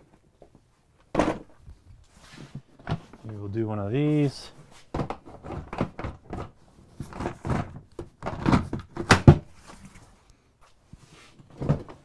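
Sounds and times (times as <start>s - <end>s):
plastic toolboxes clunking: 0.0s - 1.6s, 2.3s - 3.6s, 4.6s - 10.2s, 11.3s - 12.0s.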